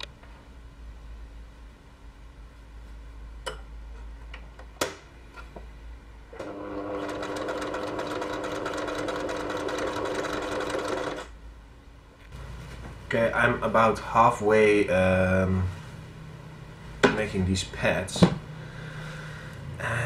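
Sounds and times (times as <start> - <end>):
sewing machine stitching: 6.4 - 11.3.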